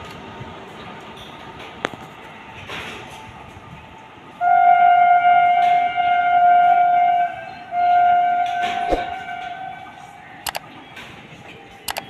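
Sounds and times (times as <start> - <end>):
locomotive air horn blasts: 4.4 - 10.0.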